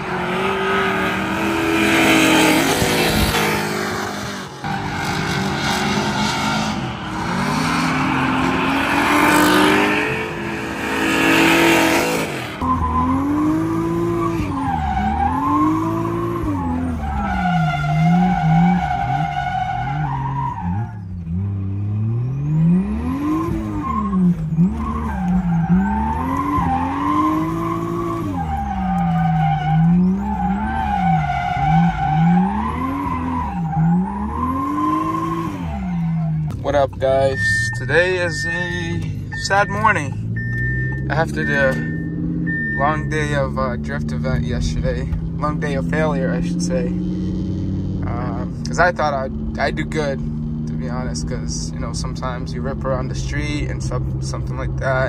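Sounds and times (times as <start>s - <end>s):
car engine revving: 0.0s - 55.0s
tires squealing: 0.0s - 55.0s.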